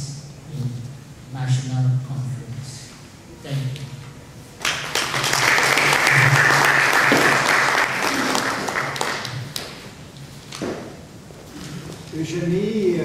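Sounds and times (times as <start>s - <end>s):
audience applauding: 4.6s - 9.8s.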